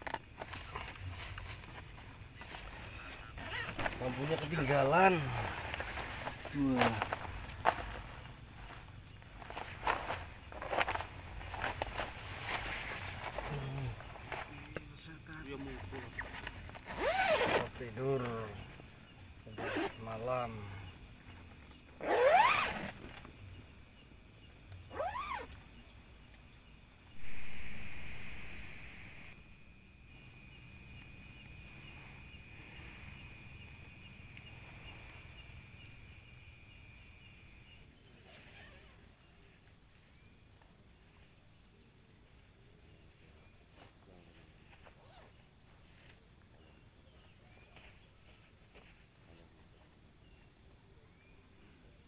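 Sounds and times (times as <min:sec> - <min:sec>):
crickets chirping: 0:00.0 - 0:52.0
sudden rustle: 0:00.1 - 0:14.9.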